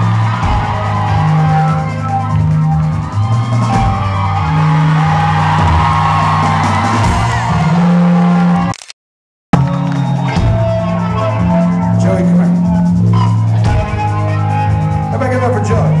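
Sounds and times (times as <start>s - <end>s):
drums: 0.0s - 8.7s, 9.6s - 16.0s
live rock band playing: 0.0s - 8.7s, 9.6s - 16.0s
held bass notes: 9.6s - 16.0s.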